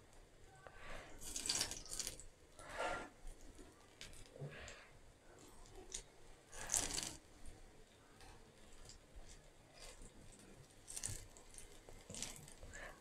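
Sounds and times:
oil sizzling with pops: 0:00.0 - 0:13.0.

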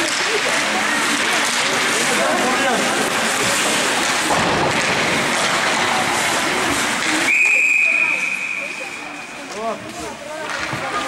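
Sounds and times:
loud rushing noise: 0:00.8 - 0:09.4.

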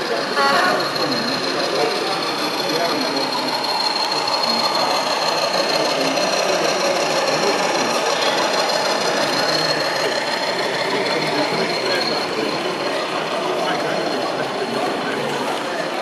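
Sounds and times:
constant high-pitched tone: 0:00.0 - 0:15.8
model locomotive whirring: 0:00.0 - 0:16.0.

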